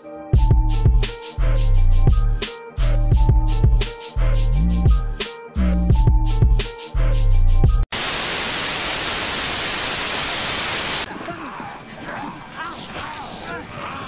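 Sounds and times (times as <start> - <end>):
music with heavy bass beat: 0.4 - 7.8
television static hiss: 8.0 - 11.1
faint voices from television: 11.1 - 14.0.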